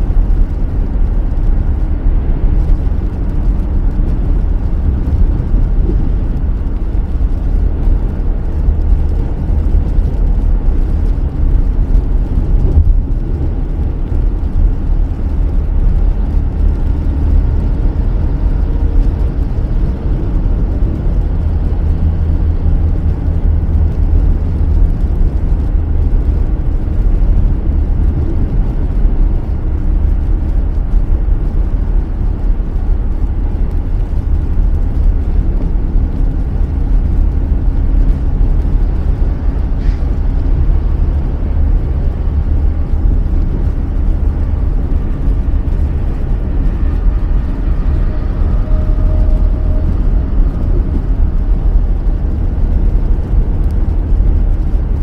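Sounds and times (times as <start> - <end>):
car driving on wet road: 0.0 - 55.0.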